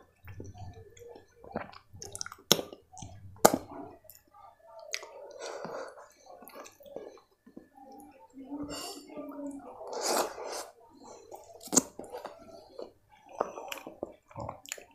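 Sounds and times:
chewing: 0.0 - 8.2, 9.8 - 14.9
fingers squishing soft food: 10.0 - 14.9.

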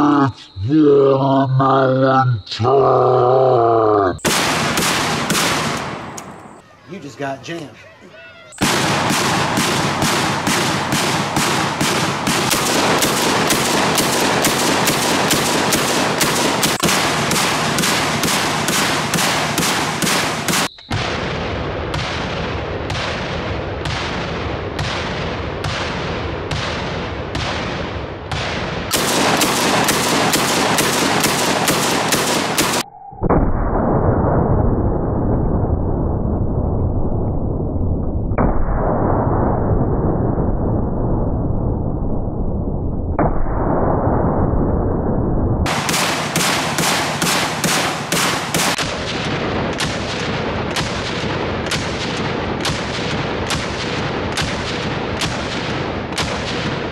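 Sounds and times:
shotgun shots: 4.2 - 6.8, 8.6 - 32.8, 45.7 - 56.9.

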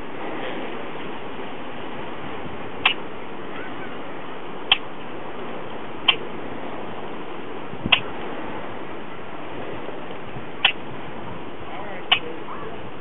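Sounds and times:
steady hiss: 0.0 - 13.0
grackle clicks: 4.7 - 4.9, 6.0 - 6.3, 7.9 - 8.1, 10.1 - 10.8, 12.1 - 12.3.

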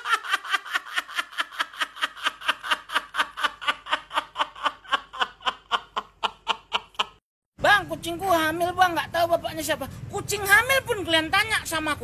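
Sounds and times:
man laughing hard: 0.0 - 7.2.

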